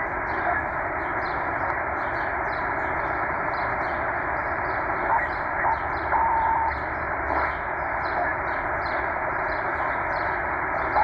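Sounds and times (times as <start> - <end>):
radio static hiss: 0.0 - 11.0
radio whistling tones: 5.1 - 7.5.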